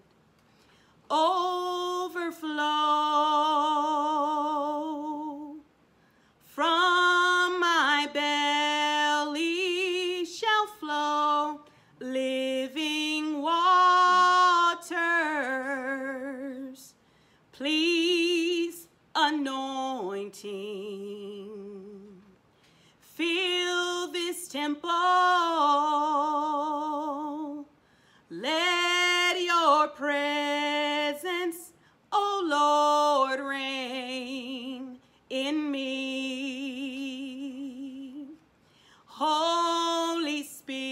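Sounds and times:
person singing unaccompanied: 0:01.1 - 0:05.7.

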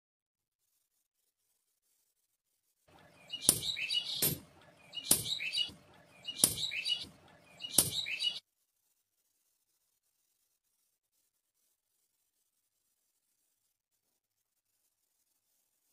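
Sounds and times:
high chattering clink: 0:03.2 - 0:08.3
hammer striking steel on anvil: 0:03.3 - 0:08.3.

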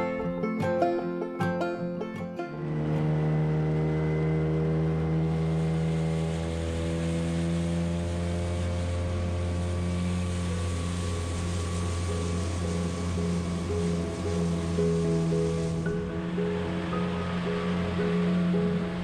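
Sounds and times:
outboard motor running: 0:02.4 - 0:19.0.

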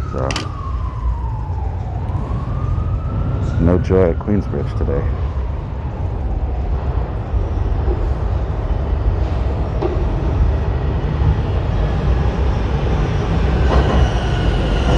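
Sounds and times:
subway train rumbling: 0:00.0 - 0:14.9.

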